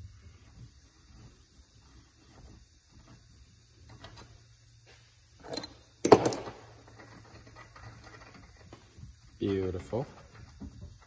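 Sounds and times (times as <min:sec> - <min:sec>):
metal handling noises: 0:05.4 - 0:09.2.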